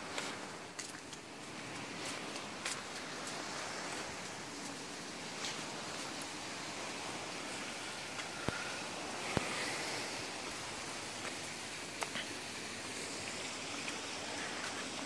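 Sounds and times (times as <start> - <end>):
steady rushing outdoor noise: 0.0 - 15.0.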